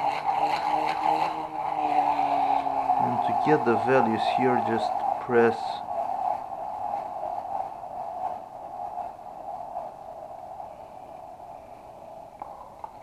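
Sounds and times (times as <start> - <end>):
rotor whirring: 0.0 - 6.4.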